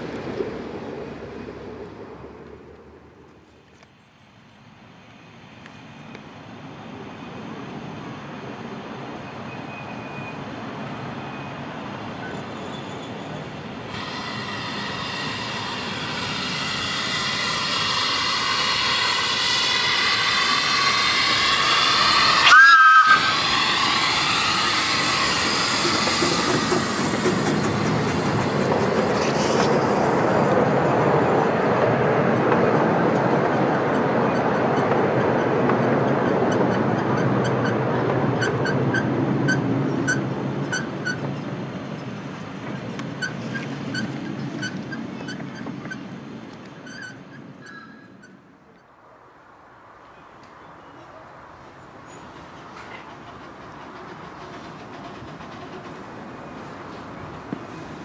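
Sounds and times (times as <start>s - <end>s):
carriages rumbling over rails: 0.0s - 3.7s, 6.4s - 48.8s, 49.4s - 58.0s
steam locomotive passing: 0.0s - 3.9s, 4.8s - 58.0s
steam whistle blast: 14.0s - 25.4s.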